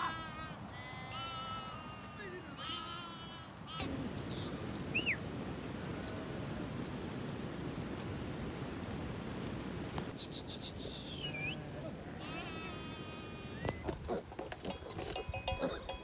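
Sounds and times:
sheep bleating: 0:00.0 - 0:03.9, 0:11.2 - 0:13.7.

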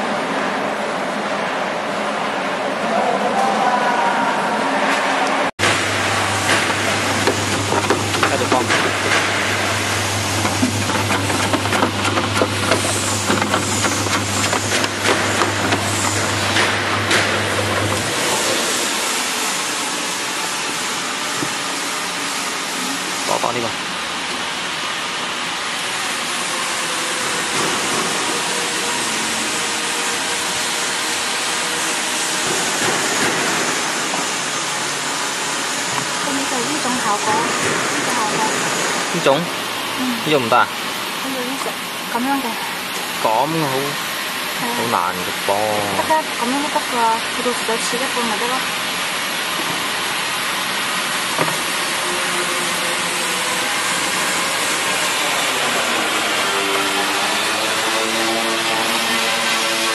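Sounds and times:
slicing machine whirring: 0:05.6 - 0:22.1
slicing machine whirring hiss: 0:05.6 - 0:42.0, 0:47.8 - 0:59.9.

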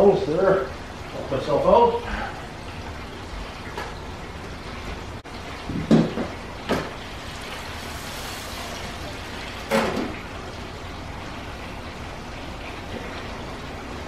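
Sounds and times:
hot oil sizzling: 0:00.0 - 0:14.0
low hiss of frying oil: 0:00.0 - 0:14.0
fryer lid and basket clunking: 0:09.6 - 0:10.3.

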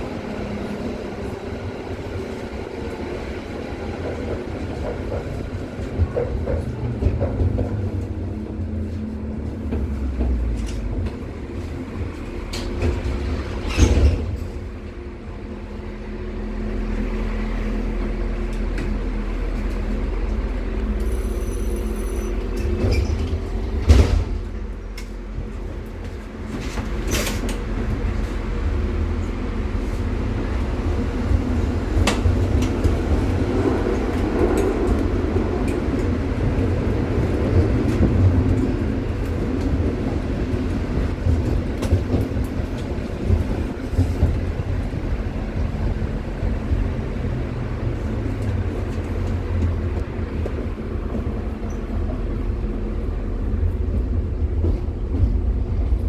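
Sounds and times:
tram motor hum: 0:00.0 - 0:56.0
wheels rumbling on rails: 0:00.0 - 0:56.0.

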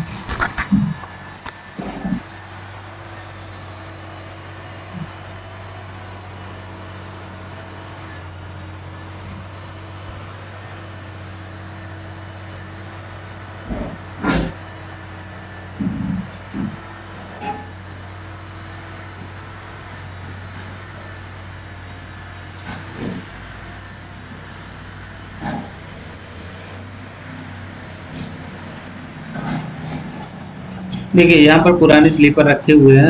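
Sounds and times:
engines humming: 0:00.0 - 0:33.0.

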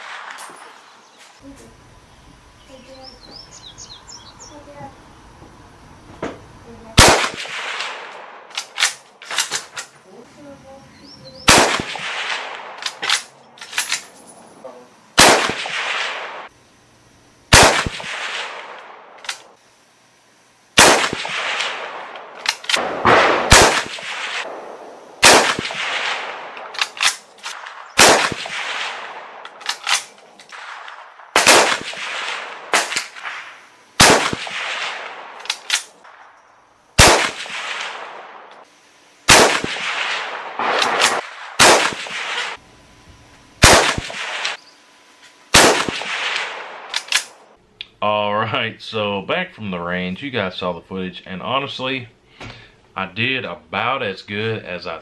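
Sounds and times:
rifle shots with echo: 0:00.0 - 0:00.8, 0:07.0 - 0:09.7, 0:11.5 - 0:13.4, 0:15.2 - 0:16.5, 0:17.5 - 0:19.6, 0:20.8 - 0:36.4, 0:37.0 - 0:38.6, 0:39.3 - 0:42.6, 0:43.6 - 0:44.6, 0:45.5 - 0:47.5
rifle bolt clacks: 0:46.9 - 0:47.4.

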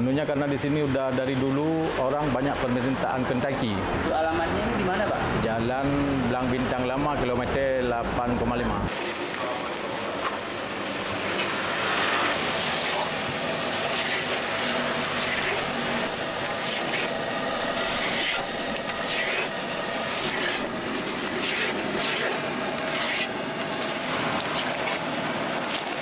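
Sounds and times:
steady rushing noise: 0:03.8 - 0:26.0
metal spatula scraping wok: 0:13.8 - 0:15.7, 0:16.6 - 0:17.1, 0:17.8 - 0:23.4.

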